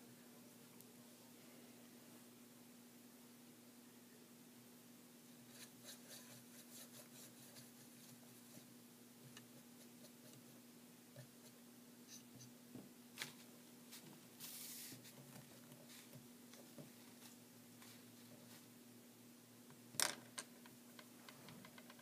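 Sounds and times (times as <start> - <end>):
faint steady hum: 0.0 - 22.0
soft paper rustle: 13.2 - 18.7.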